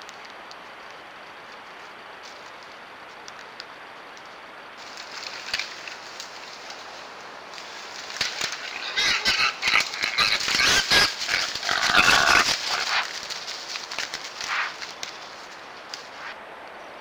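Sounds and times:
dry leaves crackling: 0.0 - 16.4
hogs squealing: 8.3 - 13.2.

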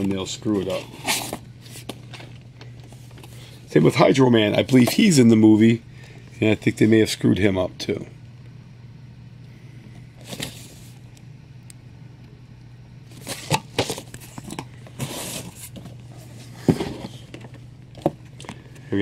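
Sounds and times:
steady low hum: 0.0 - 19.0
box crinkling and rustling: 13.1 - 18.5.

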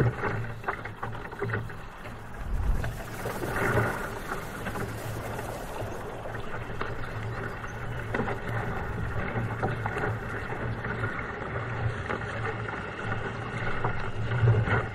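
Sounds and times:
water splashing against kayak: 0.0 - 14.9
wind buffeting microphone: 0.0 - 14.9
steady low rumble: 1.6 - 12.1.

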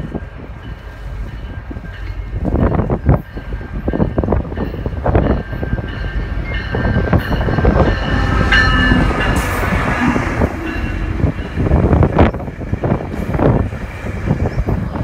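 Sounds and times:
train rumbling past: 0.0 - 15.0
steady high tones: 4.1 - 12.8.

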